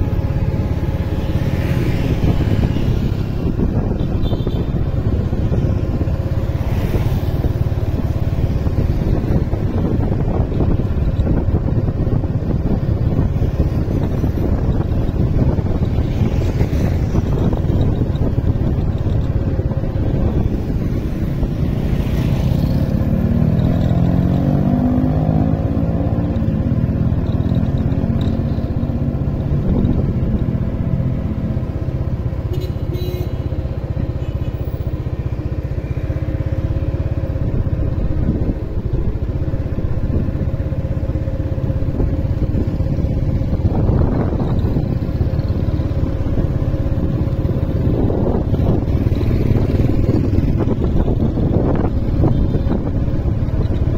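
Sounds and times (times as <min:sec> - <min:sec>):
wind noise on microphone: 0:00.0 - 0:53.9
motorbike engine running: 0:26.4 - 0:53.9.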